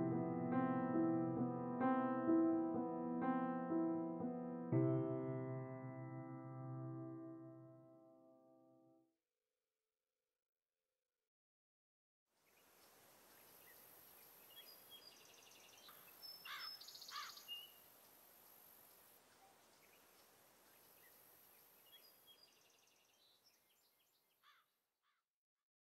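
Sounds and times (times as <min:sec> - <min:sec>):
low steady hiss: 0:12.4 - 0:24.2
birds chirping: 0:12.5 - 0:24.6.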